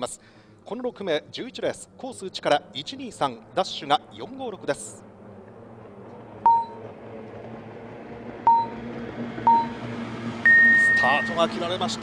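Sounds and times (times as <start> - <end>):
short electronic beeps: 6.4 - 6.8, 8.5 - 8.8, 9.5 - 9.8, 10.5 - 11.4.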